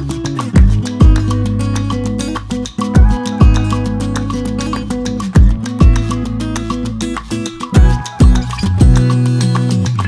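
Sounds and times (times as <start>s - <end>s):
acoustic guitar: 0.0s - 10.0s
bass line: 0.0s - 10.0s
steady drum beat: 0.6s - 1.4s, 3.0s - 3.8s, 5.4s - 6.3s, 7.7s - 9.1s.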